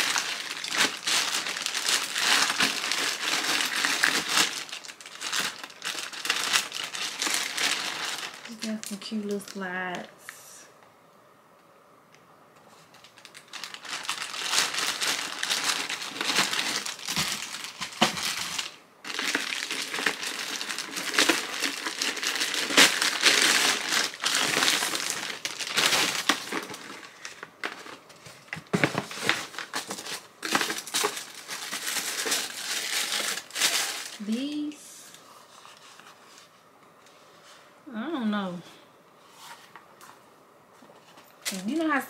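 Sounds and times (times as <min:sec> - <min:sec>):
plastic packaging crinkling: 0:00.0 - 0:10.1, 0:12.8 - 0:34.8.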